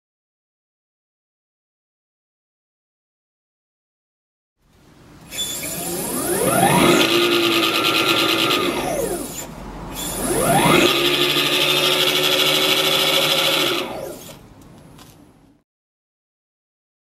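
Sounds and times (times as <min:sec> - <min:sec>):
electric scooter motor whine: 0:05.3 - 0:14.4
rattling rasp from belt drive: 0:05.3 - 0:14.4.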